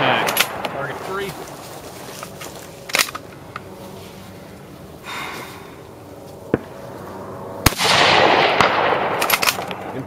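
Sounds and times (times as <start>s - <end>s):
rifle shot: 7.6s - 10.0s.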